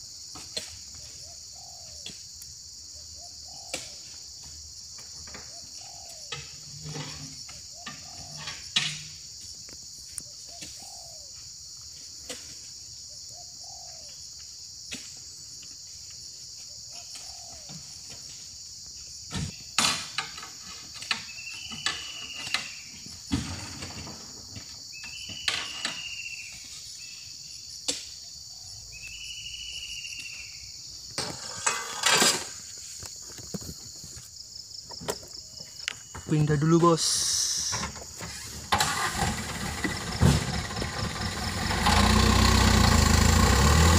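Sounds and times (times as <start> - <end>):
insects chorus: 0.0 - 43.9
fruit bunches thudding into truck bed: 39.7 - 41.0.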